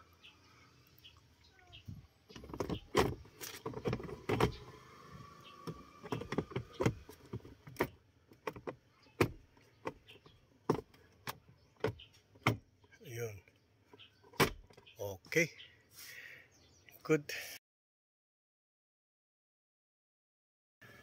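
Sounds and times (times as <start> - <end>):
plastic glove box clicks and knocks: 2.3 - 4.7, 5.6 - 12.7, 14.4 - 14.8.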